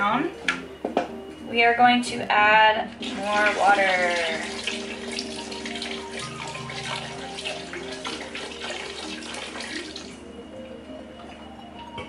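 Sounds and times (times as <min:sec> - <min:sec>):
water pouring into a pot: 0:02.9 - 0:10.3.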